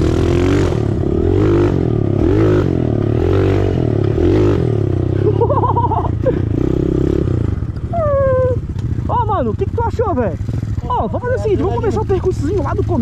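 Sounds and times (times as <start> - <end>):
small dirt bike engine revving: 0.0 - 8.8.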